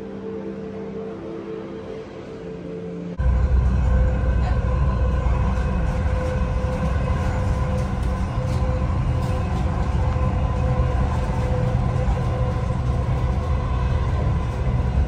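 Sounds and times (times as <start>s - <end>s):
train rumbling on track: 3.2s - 15.0s.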